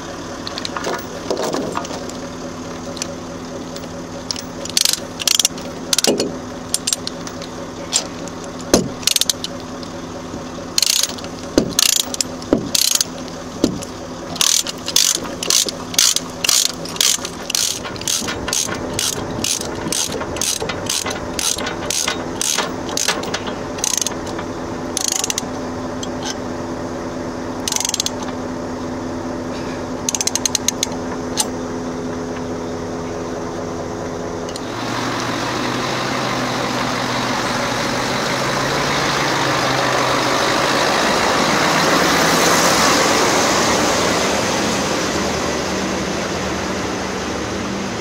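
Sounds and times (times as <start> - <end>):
steady low hum: 0.0 - 48.0
heavy metal clanks: 0.4 - 2.2, 2.9 - 9.6, 10.7 - 26.4
ratchet pawl clicks: 4.3 - 6.1, 8.7 - 9.6, 10.8 - 13.1, 14.4 - 24.4, 25.0 - 25.5, 27.6 - 28.3, 30.1 - 31.5.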